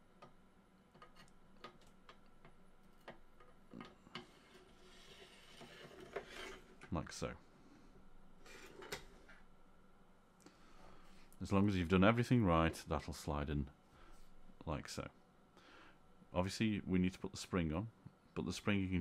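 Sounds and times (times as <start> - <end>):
parts scraping inside rifle: 4.4 - 6.8.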